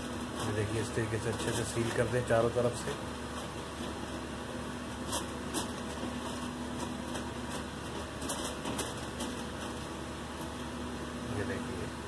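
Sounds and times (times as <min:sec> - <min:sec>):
aluminium foil crinkling: 0:00.0 - 0:04.2, 0:04.9 - 0:10.8
steady background hum: 0:00.0 - 0:12.0.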